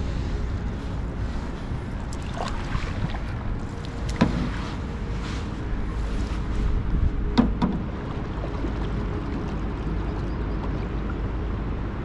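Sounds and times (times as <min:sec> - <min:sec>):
canoe paddling: 0:00.0 - 0:12.0
low wind rumble on microphone: 0:00.0 - 0:12.0
sharp knocks: 0:07.4 - 0:07.8.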